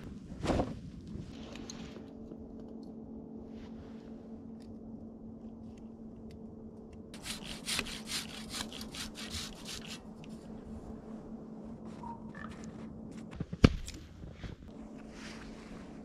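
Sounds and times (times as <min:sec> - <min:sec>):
hand saw cutting wood: 0:07.2 - 0:10.0.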